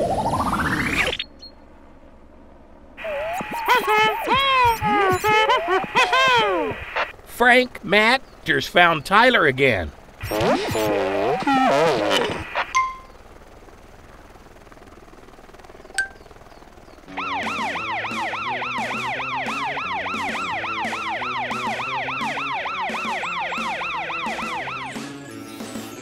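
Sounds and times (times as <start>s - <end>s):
cartoon siren yelp: 3.0s - 7.1s, 17.1s - 25.1s.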